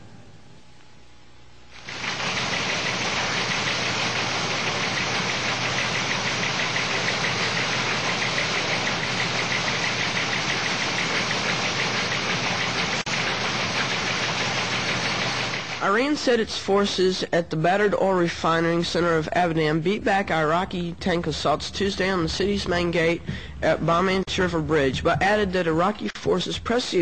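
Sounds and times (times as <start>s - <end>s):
teletype clatter: 1.8s - 16.0s.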